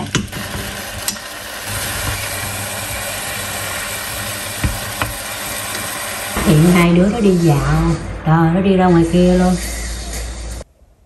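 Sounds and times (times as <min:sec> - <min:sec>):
meat sizzling in a pot: 0:00.0 - 0:06.8.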